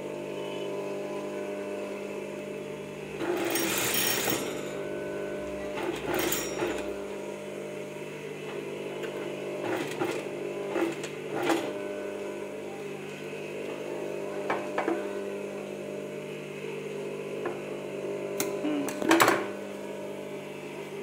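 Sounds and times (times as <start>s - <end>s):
sewing machine motor hum: 0.0s - 21.0s.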